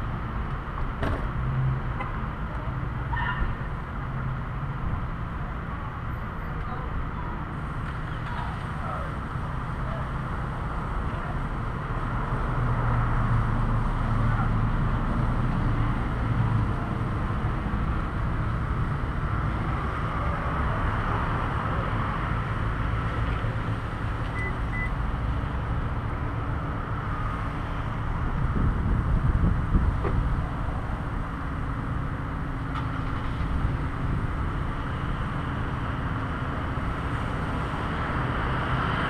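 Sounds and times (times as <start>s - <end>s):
car engine and tyres rumbling: 0.0s - 39.0s
traffic hum: 0.0s - 39.0s
short faint beeps: 24.3s - 25.0s.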